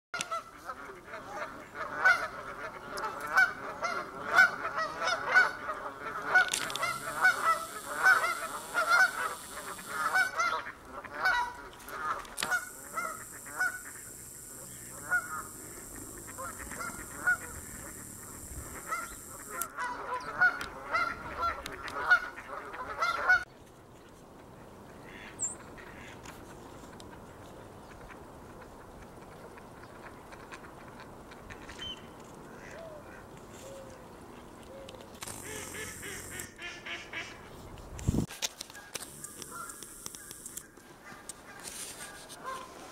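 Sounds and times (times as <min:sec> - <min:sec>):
geese honking: 0:00.2 - 0:23.5, 0:35.3 - 0:37.4, 0:38.7 - 0:42.8.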